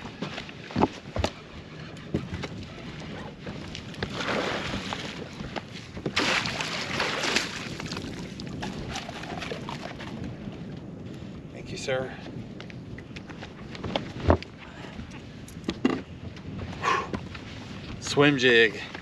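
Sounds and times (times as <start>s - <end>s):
fish thrashing and water splashing: 3.8s - 5.4s, 6.1s - 10.2s.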